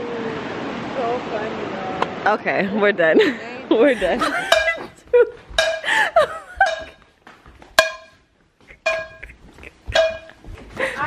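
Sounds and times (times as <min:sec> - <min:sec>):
women laughing: 0:02.6 - 0:07.0, 0:08.6 - 0:11.0.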